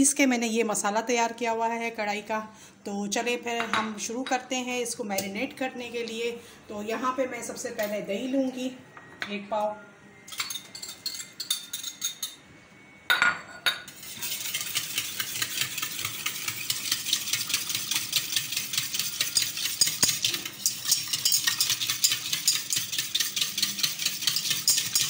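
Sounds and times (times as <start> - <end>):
spoon knocking and scraping bowl: 13.2 - 25.0
whisk ticking against metal bowl: 14.0 - 25.0.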